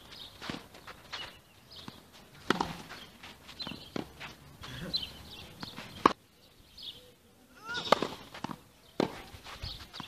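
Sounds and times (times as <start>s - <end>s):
footsteps scuffing on clay: 0.0s - 6.2s, 7.8s - 10.0s
tennis ball struck by racket: 1.8s - 3.0s, 5.5s - 6.2s, 7.8s - 9.4s.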